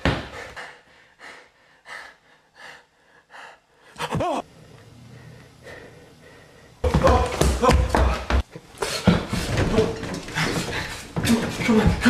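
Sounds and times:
person breathing hard: 0:00.1 - 0:06.8.

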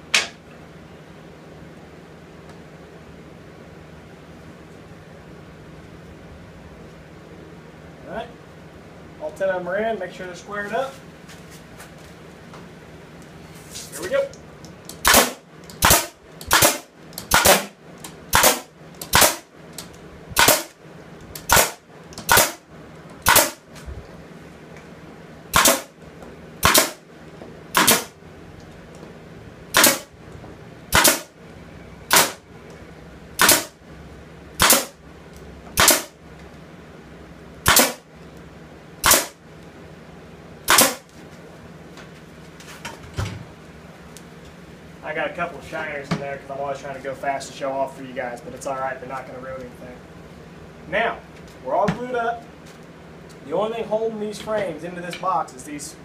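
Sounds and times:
nail gun firing into wood: 0:15.0 - 0:17.7, 0:18.3 - 0:19.4, 0:20.4 - 0:20.8, 0:21.4 - 0:22.6, 0:23.2 - 0:23.6, 0:25.5 - 0:25.9, 0:26.6 - 0:27.0, 0:27.7 - 0:28.1, 0:29.7 - 0:30.1, 0:30.9 - 0:31.3, 0:32.1 - 0:32.4, 0:33.4 - 0:33.7, 0:34.6 - 0:35.0, 0:35.8 - 0:36.1, 0:37.6 - 0:38.0, 0:39.0 - 0:39.4, 0:40.7 - 0:41.1.

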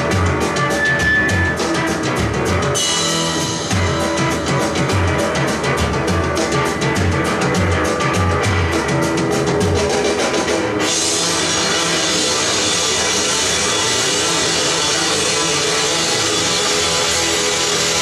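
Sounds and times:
bass guitar: 0:00.0 - 0:18.0
guitar: 0:00.0 - 0:18.0
rock drum kit playing: 0:00.0 - 0:18.0.

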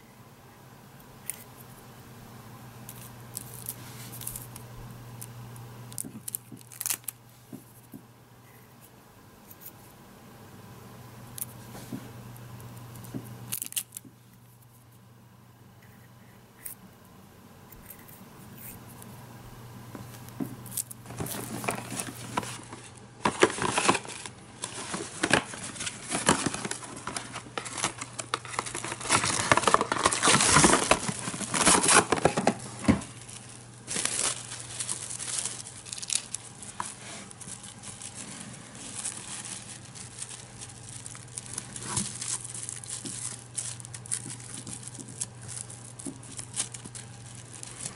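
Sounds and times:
cling film crinkling: 0:02.8 - 0:07.9, 0:12.3 - 0:14.8, 0:20.0 - 0:47.9.

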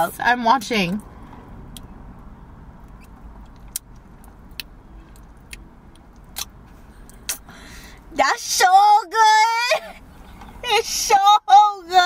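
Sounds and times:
car interior rumble: 0:00.0 - 0:12.0
mouth clicks and smacks: 0:01.7 - 0:01.9, 0:02.8 - 0:07.5.

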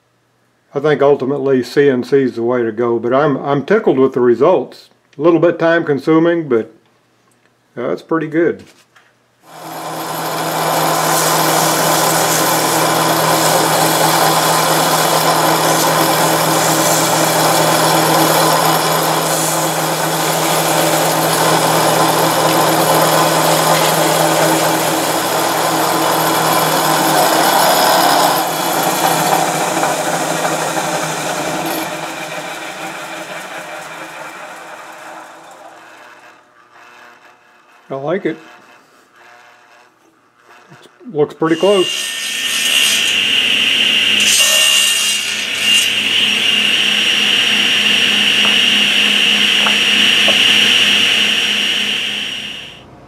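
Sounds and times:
hand sanding: 0:09.5 - 0:32.8, 0:44.2 - 0:52.5
lathe motor humming: 0:09.5 - 0:40.8, 0:41.6 - 0:52.9.

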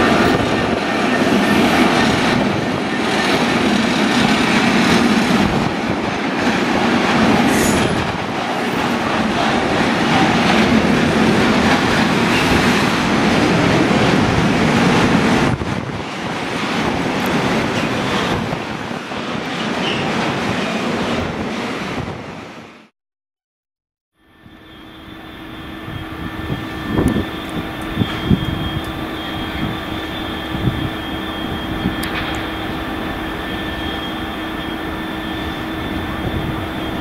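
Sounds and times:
train wagons rolling on rails: 0:00.0 - 0:22.3, 0:24.4 - 0:37.0
diesel railcar idling hum: 0:24.2 - 0:37.0.

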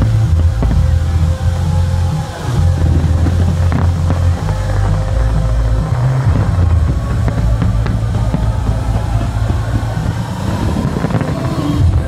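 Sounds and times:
fireworks popping and crackling: 0:00.0 - 0:12.0
music playing: 0:00.0 - 0:12.0.

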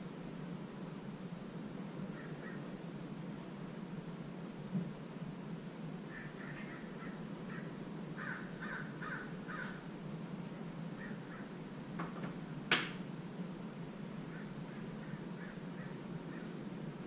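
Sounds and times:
steady low hum: 0:00.0 - 0:17.0
bird calling: 0:02.1 - 0:02.8, 0:06.1 - 0:09.9, 0:10.9 - 0:11.6, 0:14.2 - 0:17.0.

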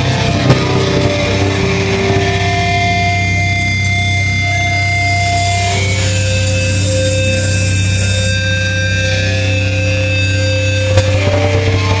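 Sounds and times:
distorted guitars droning: 0:00.0 - 0:12.0
guitar feedback tones: 0:00.0 - 0:12.0
high hiss: 0:04.8 - 0:08.7.

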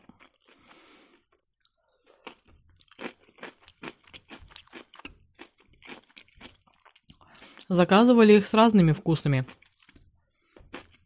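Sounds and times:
crisp chewing crunches: 0:00.0 - 0:07.7, 0:09.4 - 0:11.0.

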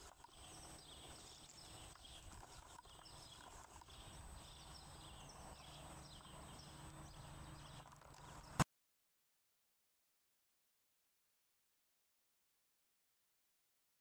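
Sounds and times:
faint outdoor background noise: 0:00.0 - 0:08.7.

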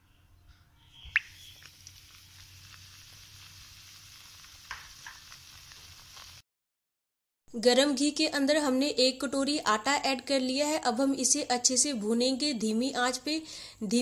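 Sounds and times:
hot oil sizzling: 0:01.1 - 0:06.4.

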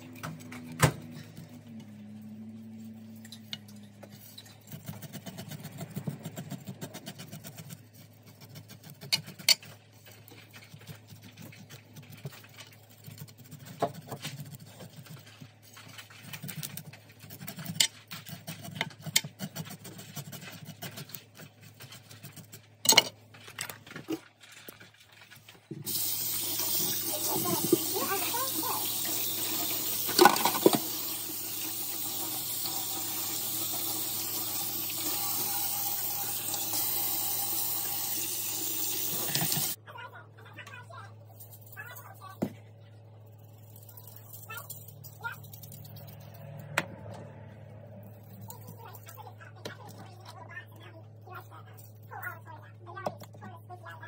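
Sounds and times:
knife scraping fish scales: 0:03.7 - 0:22.8
tap running into sink: 0:25.8 - 0:39.8.

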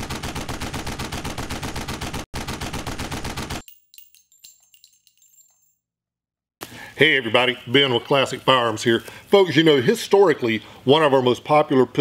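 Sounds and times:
rapid automatic gunfire: 0:00.0 - 0:03.6
faint metallic clinks: 0:03.6 - 0:05.9.

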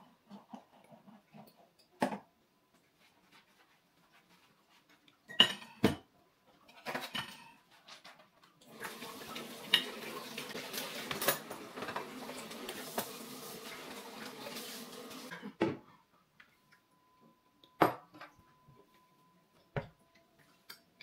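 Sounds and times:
dishes clinking and clattering: 0:05.3 - 0:15.8
tap water running: 0:08.6 - 0:15.3.

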